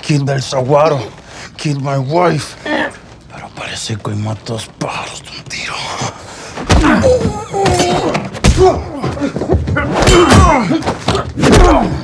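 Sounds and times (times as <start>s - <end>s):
heavy punches and body thuds: 6.6s - 12.0s
grunts and strained cries: 6.7s - 12.0s.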